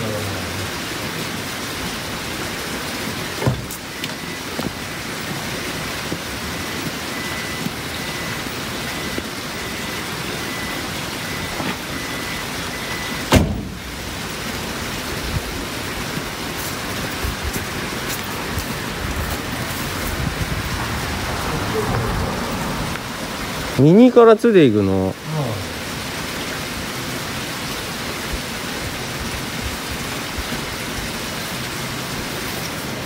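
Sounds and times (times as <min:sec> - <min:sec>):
steady rushing noise: 0:13.3 - 0:23.9.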